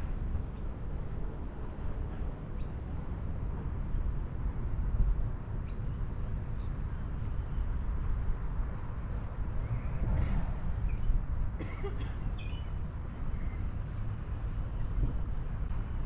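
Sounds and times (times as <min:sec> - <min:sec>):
wind on microphone: 0:13.6 - 0:16.0.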